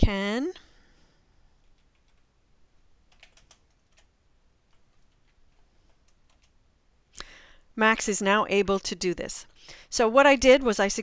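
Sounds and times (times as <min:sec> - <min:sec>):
faint keyboard keystrokes: 0:03.1 - 0:04.1, 0:04.7 - 0:06.6.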